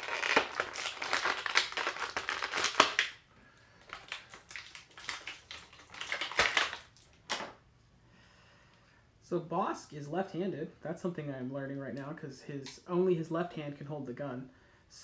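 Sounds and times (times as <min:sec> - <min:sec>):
plastic blister tray crackling: 0:00.0 - 0:03.2, 0:03.8 - 0:07.5.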